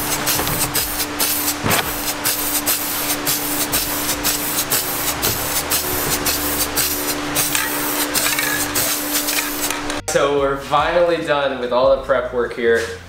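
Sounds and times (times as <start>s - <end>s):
spray paint can hissing: 0.0s - 9.9s.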